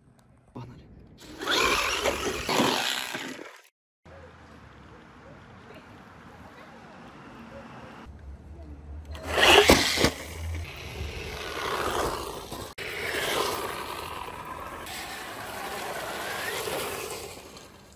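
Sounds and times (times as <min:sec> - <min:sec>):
electric motor whine: 0:01.2 - 0:03.1
rc car tyres splashing: 0:01.2 - 0:03.7, 0:09.2 - 0:17.9.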